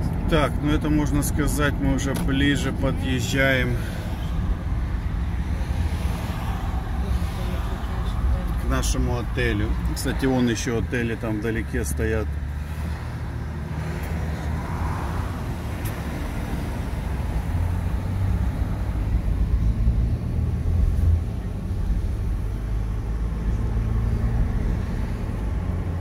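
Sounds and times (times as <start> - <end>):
car cabin road and engine rumble: 0.0 - 26.0.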